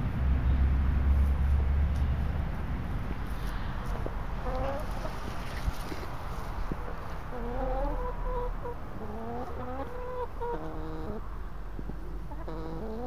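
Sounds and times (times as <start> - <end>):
hens calling: 3.4 - 13.0.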